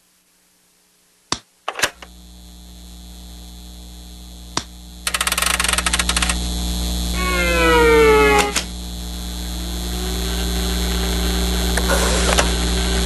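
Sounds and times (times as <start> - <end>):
steady electrical hum: 0.0 - 13.0
falling whine: 2.1 - 13.0
ratcheting knob clicks: 5.1 - 6.4.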